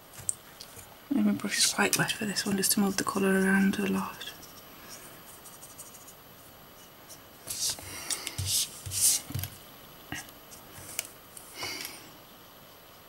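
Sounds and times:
card rustling and scraping on desk: 7.1s - 9.6s.

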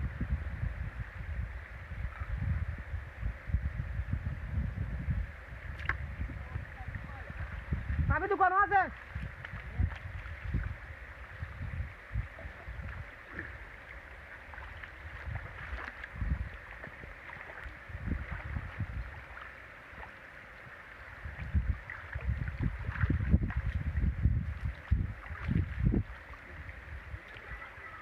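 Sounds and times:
water trickling and dripping: 5.6s - 28.0s
low thumps and rumble: 21.3s - 26.1s.

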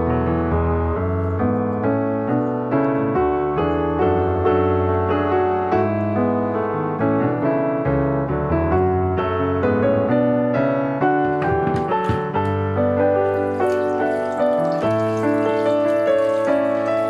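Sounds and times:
piano music: 0.0s - 17.0s
running tap water hissing: 13.2s - 17.0s.

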